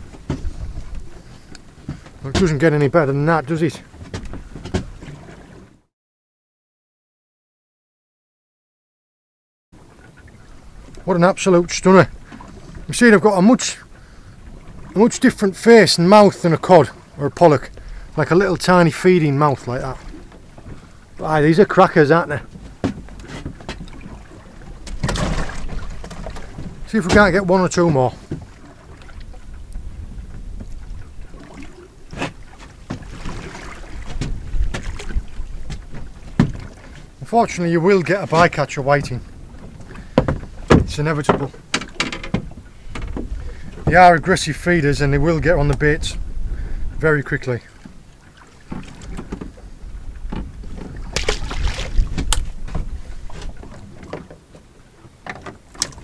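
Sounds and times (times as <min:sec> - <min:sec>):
sea swell against boat: 0:00.0 - 0:02.3, 0:03.8 - 0:05.9, 0:09.8 - 0:37.3, 0:42.4 - 0:56.0
wind rumbling on microphone: 0:00.0 - 0:03.0, 0:16.9 - 0:37.2, 0:38.4 - 0:54.2
sharp knocks: 0:40.2 - 0:43.3.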